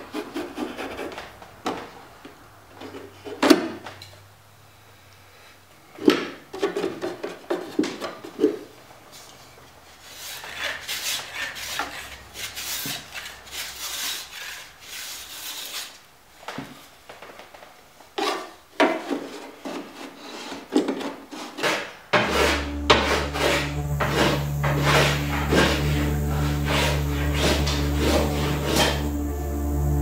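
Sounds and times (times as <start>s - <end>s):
hand file filing wood: 0.0s - 1.4s, 10.0s - 16.0s, 19.1s - 30.0s
steady low hum: 22.4s - 30.0s.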